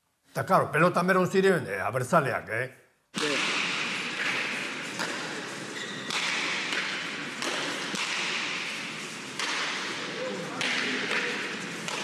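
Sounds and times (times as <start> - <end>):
ball striking court walls: 3.2 - 12.0.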